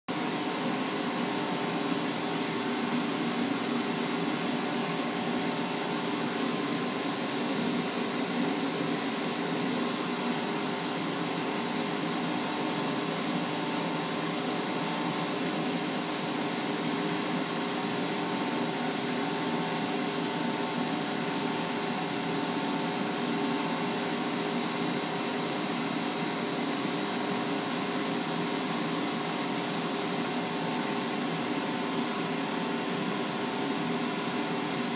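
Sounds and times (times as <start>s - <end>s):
laser cutter whirring and humming: 0.1s - 34.9s.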